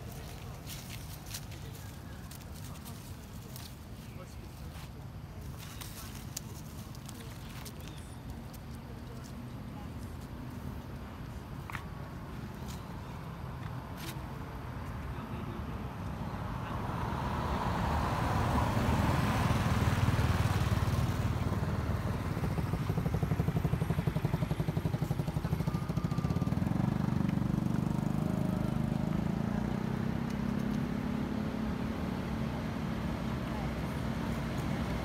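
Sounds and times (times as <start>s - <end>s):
vehicle passing on road: 12.9s - 35.0s.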